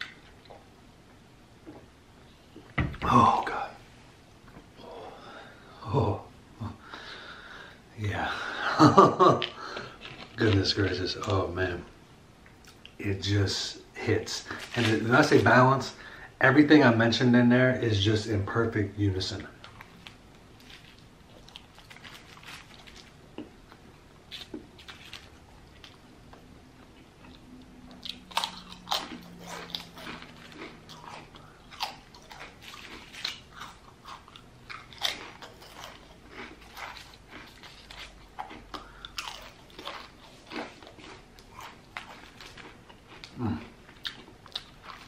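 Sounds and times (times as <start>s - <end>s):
potato chips crunching: 8.8s - 11.8s, 14.3s - 15.9s, 19.6s - 26.0s, 26.8s - 45.0s
soft chewing: 9.4s - 11.5s, 19.4s - 45.0s.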